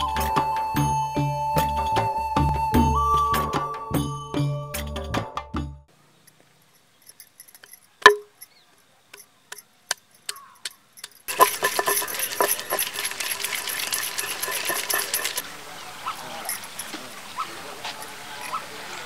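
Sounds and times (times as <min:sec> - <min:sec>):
dense background hiss: 0:05.9 - 0:11.4, 0:15.4 - 0:19.0
pestle pounding in stone mortar: 0:08.1 - 0:08.3, 0:11.3 - 0:15.4.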